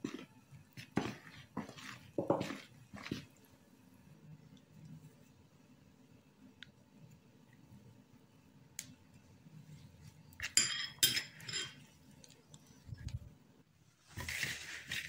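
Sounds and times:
hands working dough: 0:00.0 - 0:03.5, 0:14.0 - 0:15.0.

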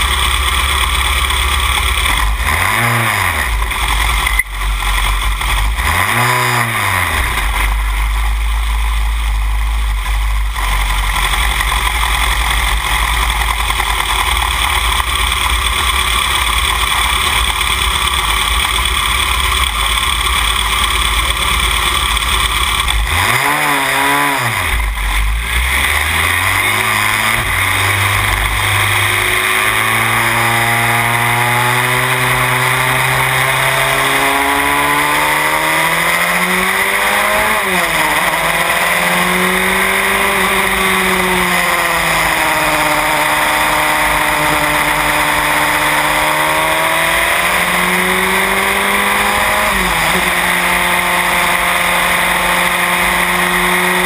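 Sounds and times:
race car engine: 0:00.0 - 0:54.0.

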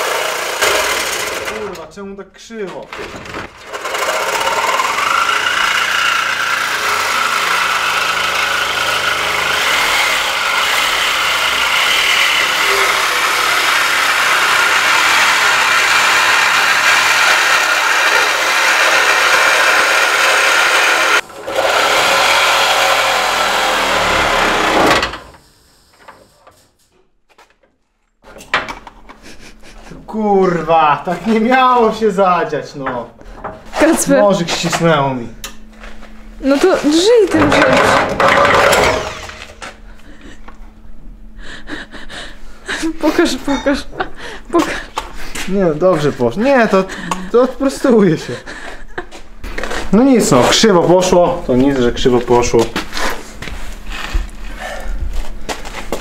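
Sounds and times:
reciprocating saw cutting sheet steel: 0:00.0 - 0:01.7, 0:03.6 - 0:25.4, 0:36.8 - 0:39.6.

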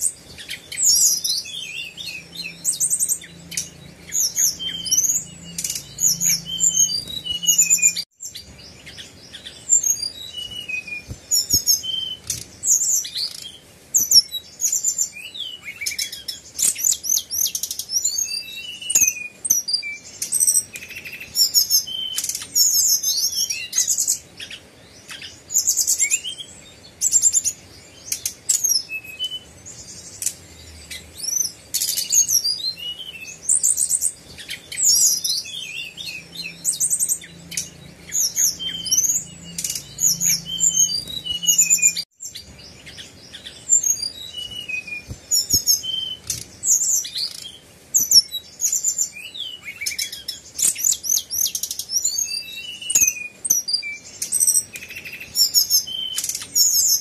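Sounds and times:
bird singing whistles and trills: 0:00.0 - 0:57.0.

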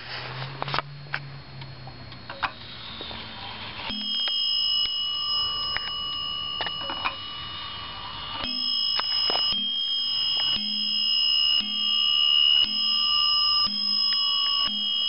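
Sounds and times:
wall clock striking bell: 0:03.9 - 0:15.0.

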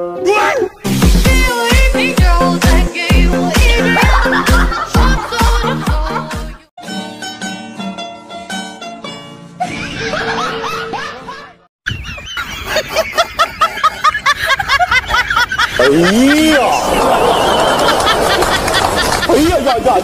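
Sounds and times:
person laughing: 0:03.6 - 0:06.6, 0:09.6 - 0:19.3
light music with plucked notes: 0:03.6 - 0:11.6.

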